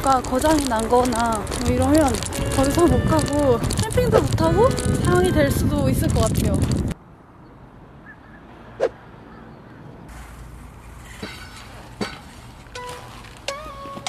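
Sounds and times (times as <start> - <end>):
plucked background music: 12.7 - 14.0.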